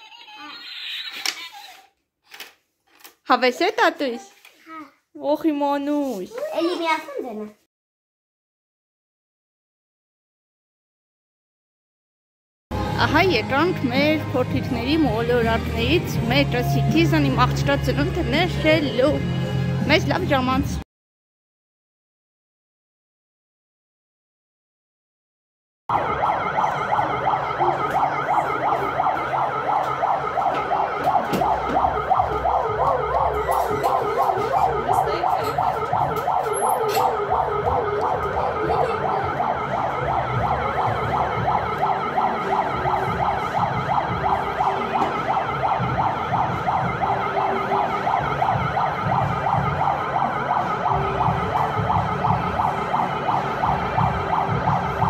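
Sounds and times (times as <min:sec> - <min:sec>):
warbling electronic siren: 0:25.9 - 0:55.0.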